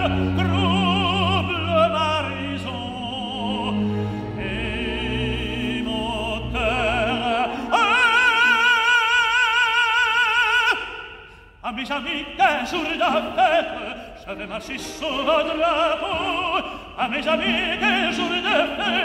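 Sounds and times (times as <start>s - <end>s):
operatic tenor singing: 0.0s - 19.0s
symphony orchestra: 0.0s - 19.0s.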